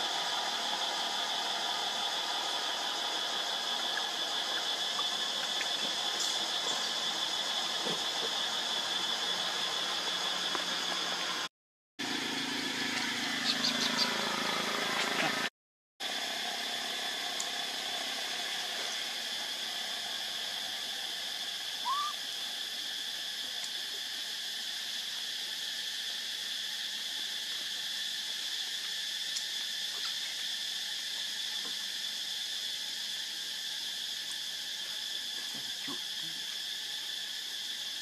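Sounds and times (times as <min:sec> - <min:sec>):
insect chorus drone: 0:00.0 - 0:38.0
short rising chirp: 0:21.8 - 0:22.2.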